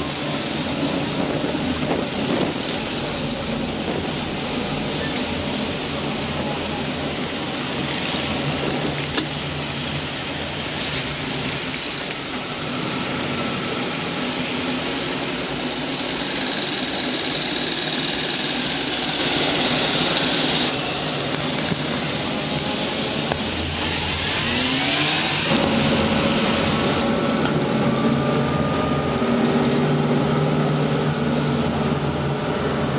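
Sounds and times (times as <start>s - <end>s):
armoured car engines driving past: 0.0s - 32.9s.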